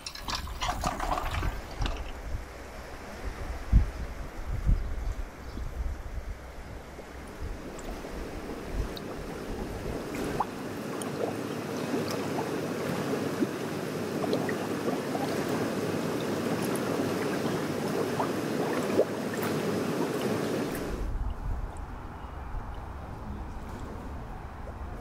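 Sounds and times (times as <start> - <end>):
rushing gurgling water: 0.0 - 25.0
quick bubbling blips: 0.2 - 11.4.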